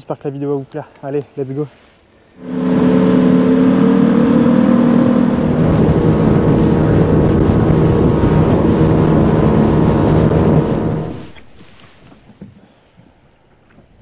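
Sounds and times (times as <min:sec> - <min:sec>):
outboard motor running: 0:02.4 - 0:12.4.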